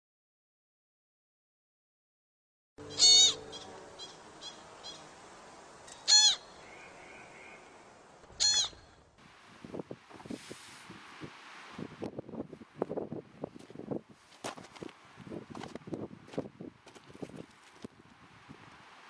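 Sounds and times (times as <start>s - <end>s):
short high animal calls: 2.8s - 5.1s, 6.0s - 6.8s, 8.4s - 9.0s
wind noise: 9.2s - 19.0s.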